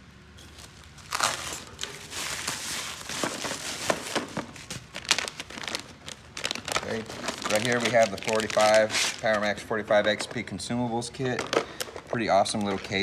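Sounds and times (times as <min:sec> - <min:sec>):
plastic packaging crinkling: 0:00.4 - 0:10.4, 0:11.1 - 0:13.0.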